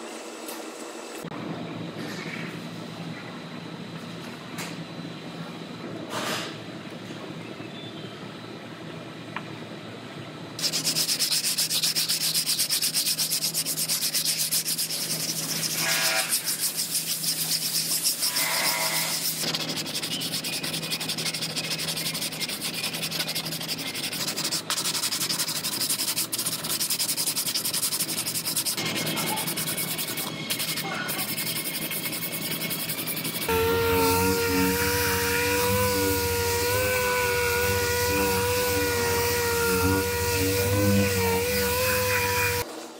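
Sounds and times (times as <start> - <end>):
sandpaper scratching strokes: 10.6 - 42.6.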